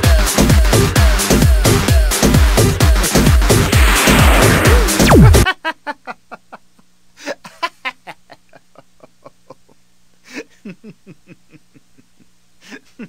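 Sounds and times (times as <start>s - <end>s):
person laughing: 10.3s - 13.0s.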